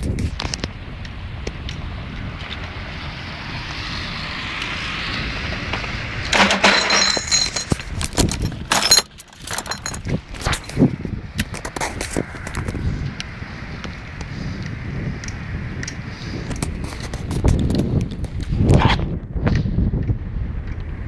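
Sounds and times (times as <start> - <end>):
bicycle rattling over paving: 0.0 - 14.2, 15.4 - 18.6
car tyre hiss on wet road: 0.8 - 6.2, 12.0 - 16.5.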